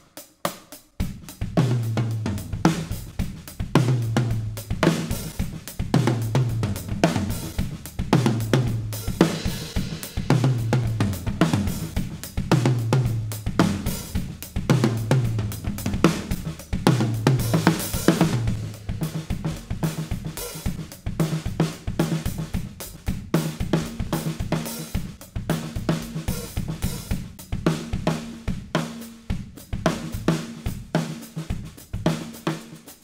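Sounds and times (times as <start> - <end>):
tom drums groove: 0.0 - 33.0
cymbals wash: 4.6 - 12.5.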